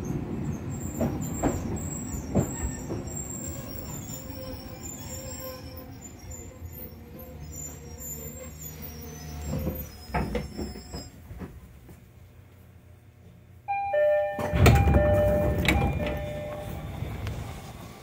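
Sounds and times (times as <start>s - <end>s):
train low hum: 0.0s - 18.0s
chime of steady tones: 13.7s - 16.9s
clunks: 14.3s - 17.6s.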